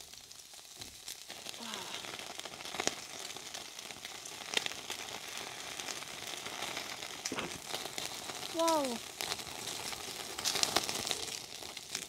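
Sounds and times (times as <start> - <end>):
meat sizzling on charcoal grill: 0.0 - 12.0
sharp crackles: 0.0 - 12.0.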